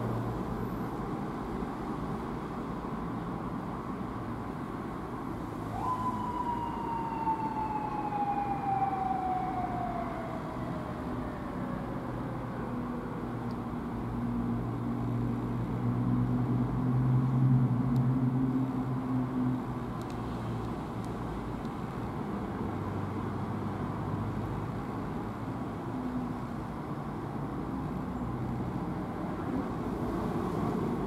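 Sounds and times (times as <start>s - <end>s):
motorcycle siren wail: 5.7s - 12.8s
low engine hum: 5.7s - 14.1s.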